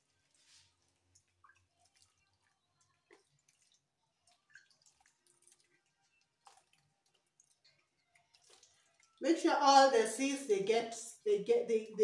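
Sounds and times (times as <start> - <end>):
water droplets ticking on metal tray: 0.0 - 9.4.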